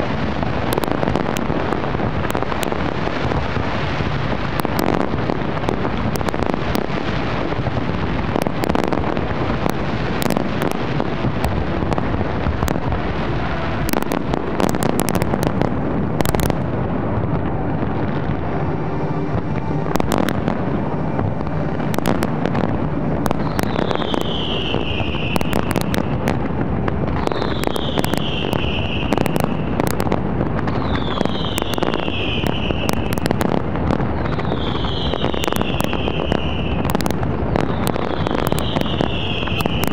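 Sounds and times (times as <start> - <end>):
fireworks bursting and crackling: 0.0 - 39.9
falling firework whistle: 17.4 - 26.3, 27.1 - 39.9.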